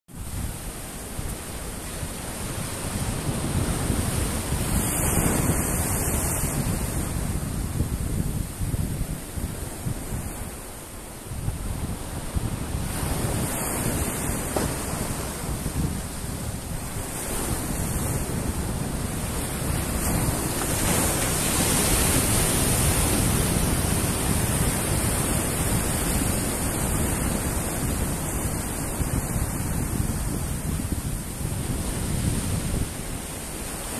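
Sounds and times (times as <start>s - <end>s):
wind buffeting microphone: 0.1s - 33.9s
waves breaking on rocks: 12.9s - 28.0s.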